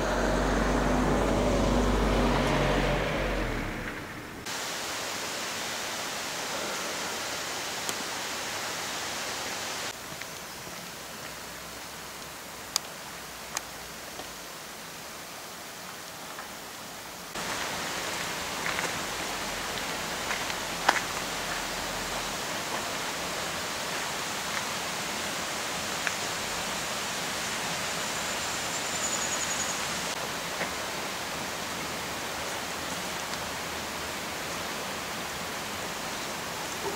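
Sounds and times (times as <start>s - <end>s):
steady rushing outdoor noise: 17.0s - 36.9s.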